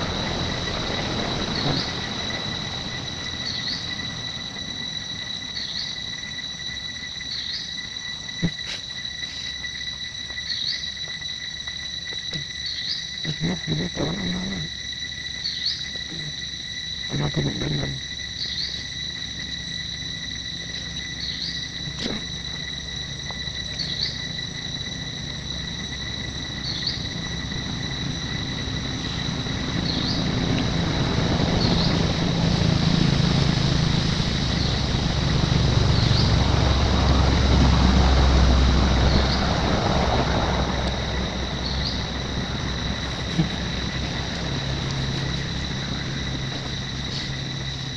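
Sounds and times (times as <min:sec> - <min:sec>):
insects droning: 0:00.0 - 0:47.9
handling noise rumbling: 0:24.3 - 0:47.9.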